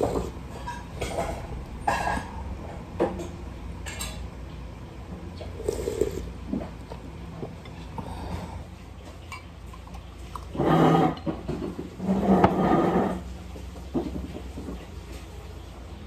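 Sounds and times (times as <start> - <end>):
slurping soup: 0.0 - 0.4, 5.6 - 6.3
steady low hum: 0.0 - 16.0.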